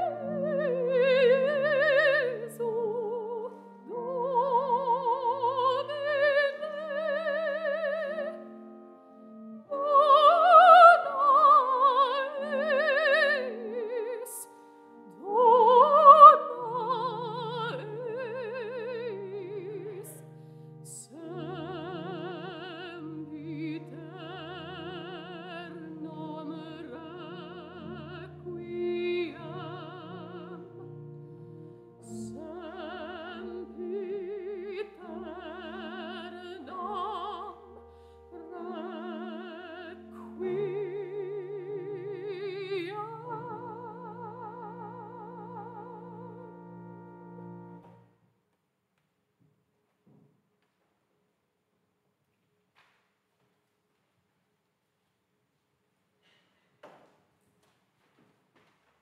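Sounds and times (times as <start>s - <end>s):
soprano singing operatically: 0.0s - 8.8s, 9.6s - 31.2s, 32.0s - 46.7s.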